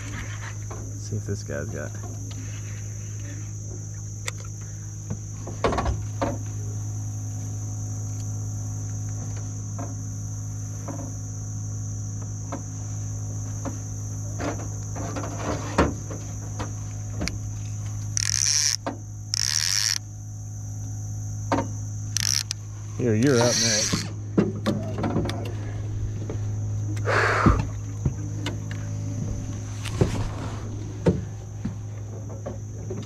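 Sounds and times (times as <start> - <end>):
high whine: 0.0 - 33.0
low electric hum: 0.0 - 33.0
short hissing bursts: 27.0 - 27.6.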